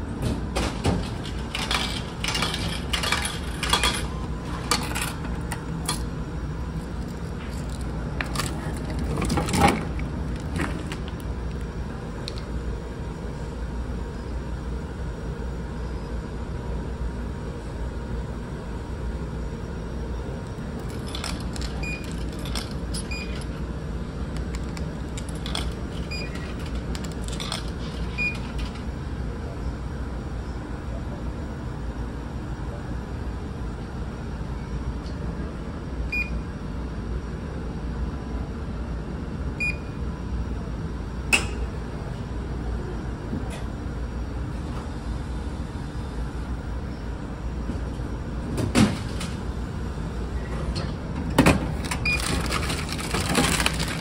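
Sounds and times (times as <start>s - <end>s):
low drone of ship engines: 0.0s - 52.2s
vending machine clunk: 0.1s - 6.1s, 50.5s - 54.0s
keypad beeps: 21.7s - 22.2s, 23.1s - 23.4s, 26.1s - 26.5s, 28.1s - 28.5s, 36.1s - 36.3s.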